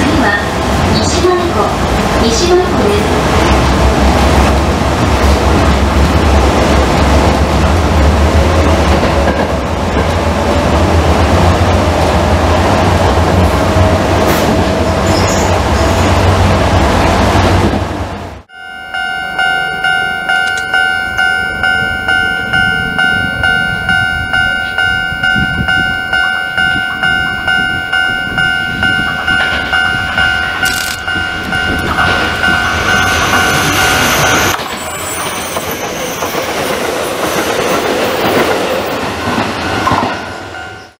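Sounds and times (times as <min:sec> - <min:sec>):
train wheels on rails: 0:00.0 - 0:41.0
level crossing bell ringing: 0:18.5 - 0:34.6, 0:39.0 - 0:41.0.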